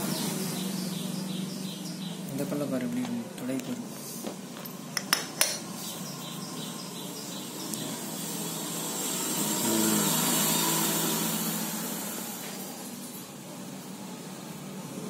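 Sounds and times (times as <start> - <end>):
metal part clinking on concrete: 4.6 - 5.7.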